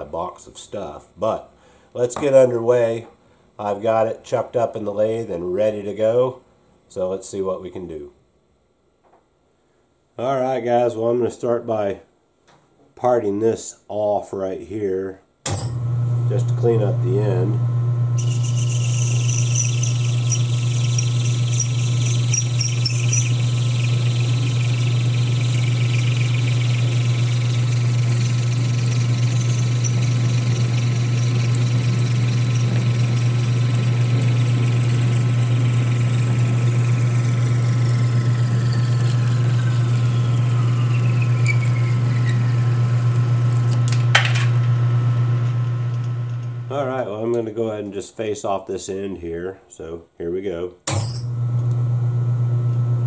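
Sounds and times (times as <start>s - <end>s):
parting tool squealing: 18.2s - 43.7s
lathe motor hum: 18.2s - 44.0s.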